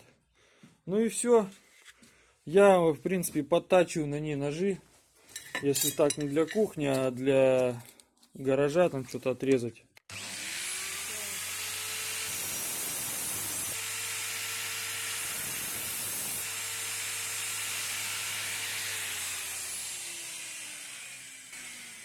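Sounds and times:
angle grinder whining: 10.1 - 22.0.

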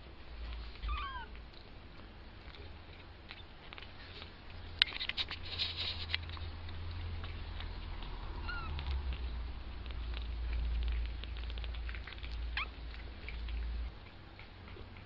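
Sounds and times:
kitten squeak: 0.8 - 1.3, 8.4 - 8.9
kitten claws scratching fabric: 2.4 - 15.0.

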